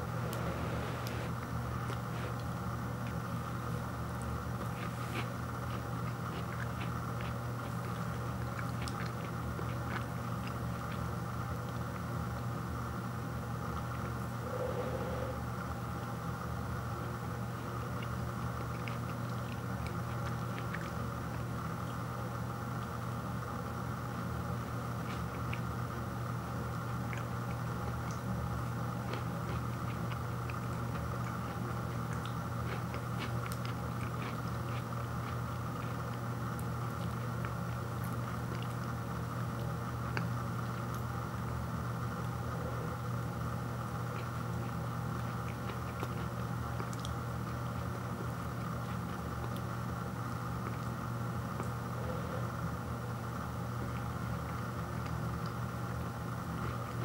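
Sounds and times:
steady low hum: 0:00.0 - 0:57.0
pastry crunching while eaten: 0:00.2 - 0:12.5, 0:24.1 - 0:52.6.

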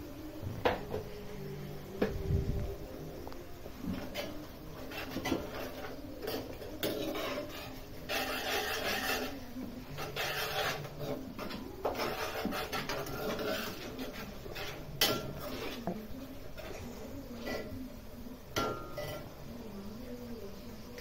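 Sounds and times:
metal spoon scraping frying pan: 0:03.8 - 0:17.8.

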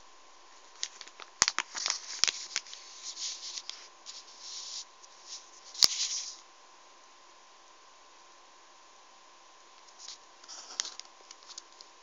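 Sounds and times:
plastic packaging crinkling: 0:00.7 - 0:06.4, 0:09.9 - 0:11.9.

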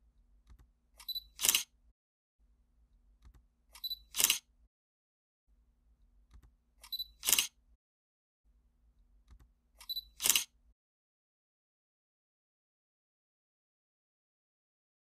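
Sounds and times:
camera shutter snap: 0:01.0 - 0:01.7, 0:03.7 - 0:04.5, 0:06.8 - 0:07.6, 0:09.8 - 0:10.5
faint camera click: 0:01.0 - 0:01.7, 0:03.7 - 0:04.5, 0:06.8 - 0:07.6, 0:09.8 - 0:10.5.

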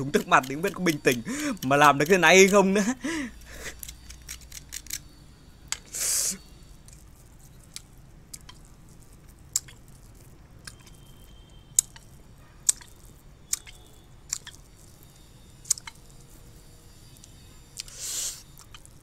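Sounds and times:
wet licking and lip-smacking: 0:09.4 - 0:10.9, 0:12.7 - 0:14.7.

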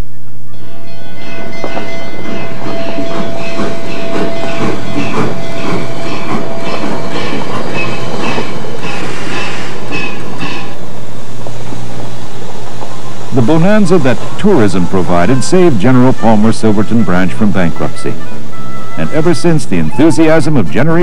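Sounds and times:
train wheels clattering on rails: 0:01.2 - 0:11.8.

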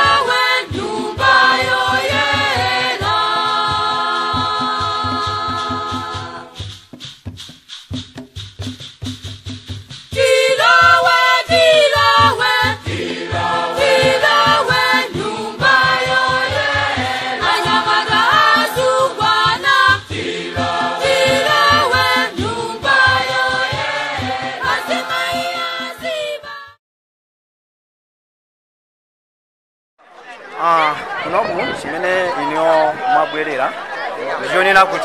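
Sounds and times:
group singing in harmony: 0:00.0 - 0:06.8, 0:10.1 - 0:26.8
fast steady drumbeat: 0:00.0 - 0:26.6.

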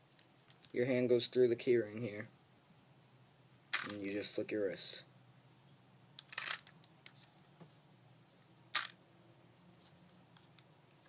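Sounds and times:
plastic clicks: 0:03.7 - 0:04.2, 0:06.2 - 0:07.2, 0:08.7 - 0:09.0.

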